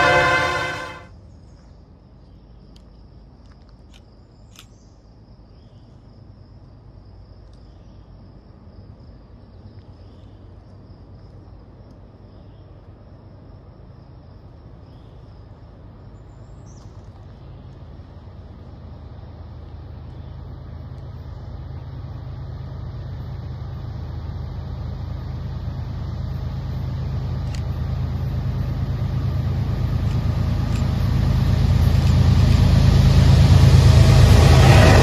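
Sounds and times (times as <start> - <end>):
locomotive horn chord: 0.0 - 1.1, 32.3 - 35.0.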